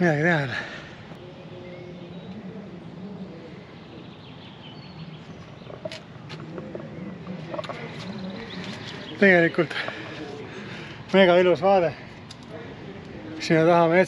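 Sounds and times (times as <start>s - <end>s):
faint voices talking: 0.0s - 14.0s.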